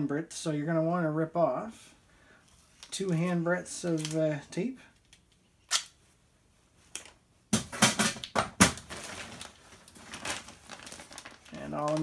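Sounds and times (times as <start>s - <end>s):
tarp crackling and rustling: 8.8s - 12.0s.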